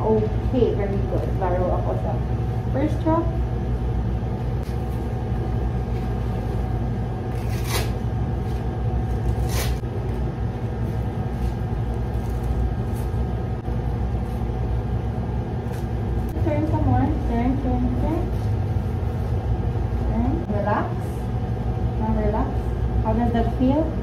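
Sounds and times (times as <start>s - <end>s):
low mechanical hum: 0.0s - 24.0s
straps scraping: 7.3s - 9.8s.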